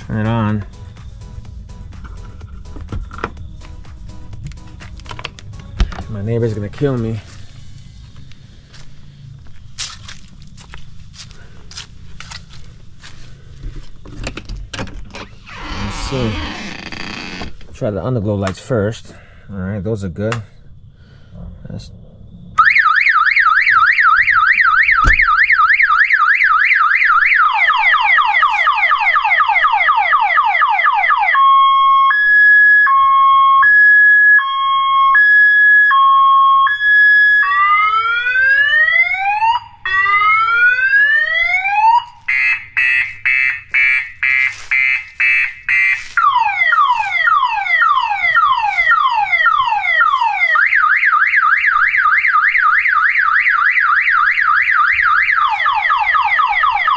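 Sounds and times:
electronic emergency siren alarm: 22.5s - 56.9s.

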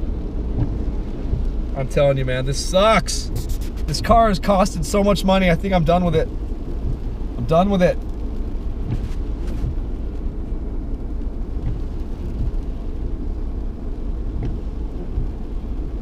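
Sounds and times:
tyre and engine rumble in car: 0.0s - 16.0s
light ticks: 0.4s - 1.7s, 10.9s - 13.0s, 14.4s - 15.4s.

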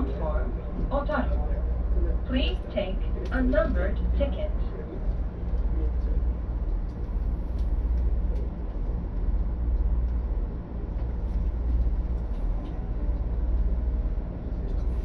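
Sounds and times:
railcar engine hum: 0.0s - 15.0s.

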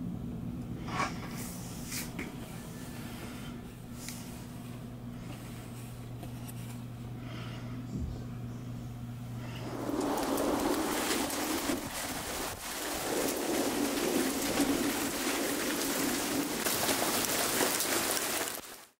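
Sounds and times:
steady rain falling: 9.4s - 19.0s.

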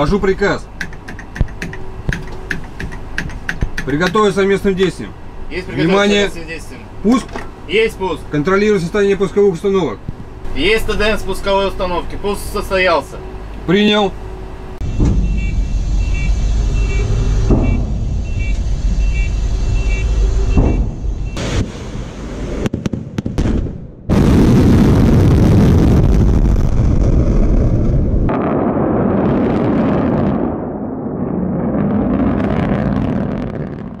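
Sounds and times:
low rumble: 14.2s - 34.0s
short high beeps: 14.8s - 21.4s
crackles: 24.1s - 34.0s.

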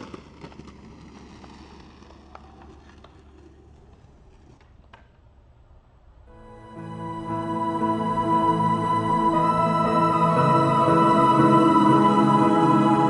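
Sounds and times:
skateboard wheels rolling on concrete: 0.0s - 6.3s
soft ambient music: 6.3s - 13.0s.

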